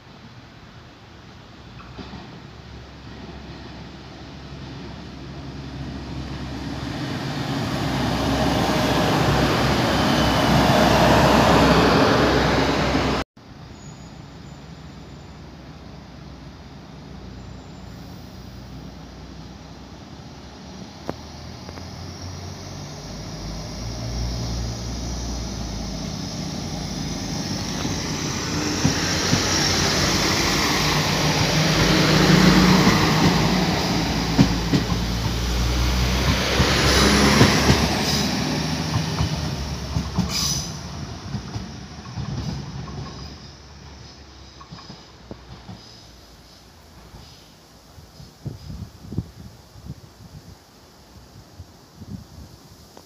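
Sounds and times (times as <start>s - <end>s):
diesel train passing: 0.0s - 52.0s
wheels clicking over rail joints: 26.3s - 47.4s.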